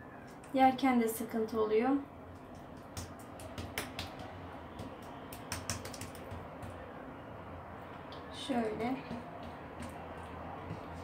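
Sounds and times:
fingers spreading wet meat mixture: 2.2 - 7.0, 9.0 - 11.0.

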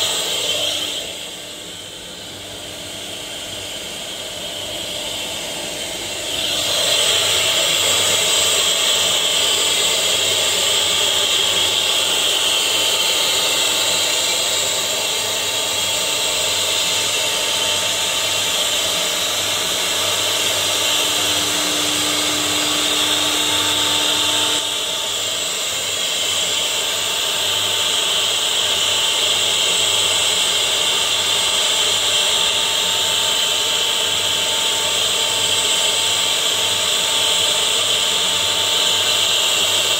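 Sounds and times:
router spindle whining: 0.0 - 39.9.

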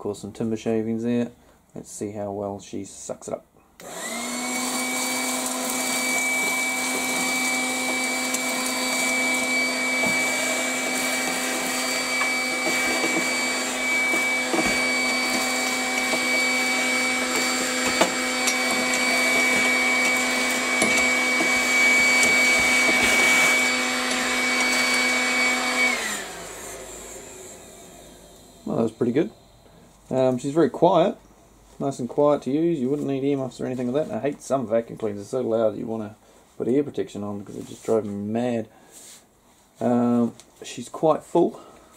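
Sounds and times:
cordless vacuum whine: 3.8 - 30.0.

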